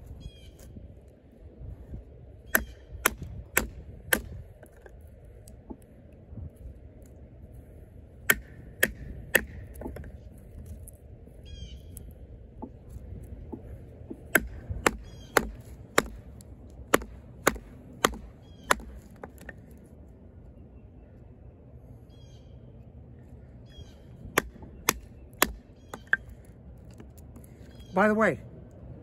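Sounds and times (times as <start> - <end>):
knife chopping into wood: 2.5 - 4.9, 8.3 - 10.1, 13.5 - 19.6, 24.4 - 26.3.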